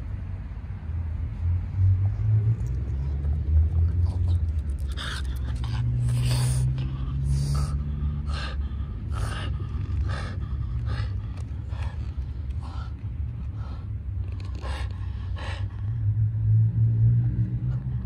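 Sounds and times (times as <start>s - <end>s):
steady low rumble: 0.0s - 18.0s
dog breathing hard: 3.9s - 16.3s.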